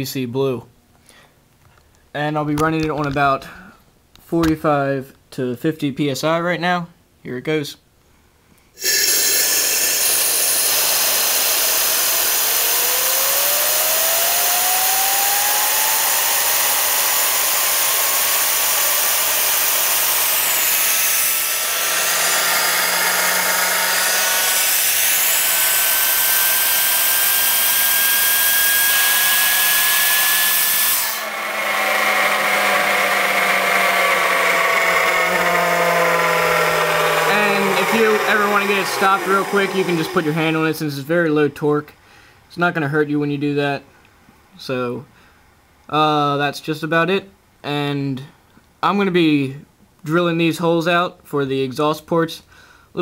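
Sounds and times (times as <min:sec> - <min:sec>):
turbine whine rising in pitch: 0:08.8 - 0:41.0.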